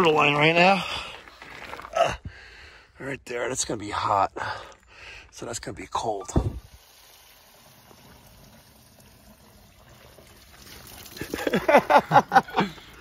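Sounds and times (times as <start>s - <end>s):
water hissing from a pipe: 6.3s - 13.0s.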